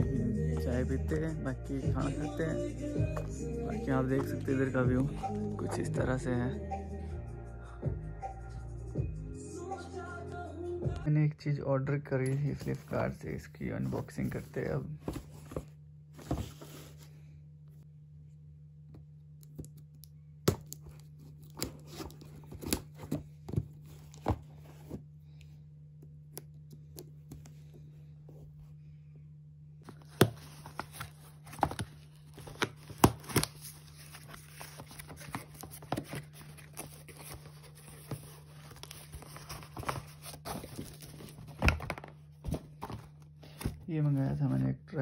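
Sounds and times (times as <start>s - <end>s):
steady low hum: 11.3s - 45.0s.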